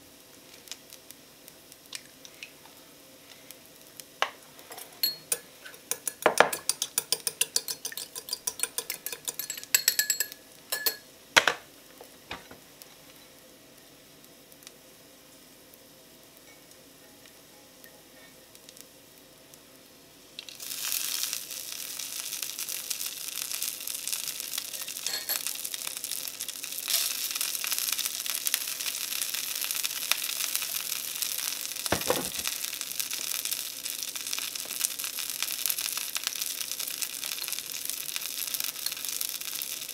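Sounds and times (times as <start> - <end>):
rice sizzling in frying pan: 0.0 - 39.9
chopsticks clinking in ceramic bowl: 4.7 - 11.0, 25.1 - 25.5.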